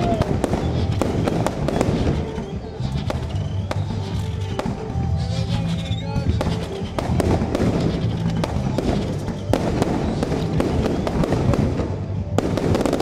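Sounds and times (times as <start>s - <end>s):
fireworks bangs and crackle: 0.0s - 13.0s
music playing: 0.0s - 13.0s.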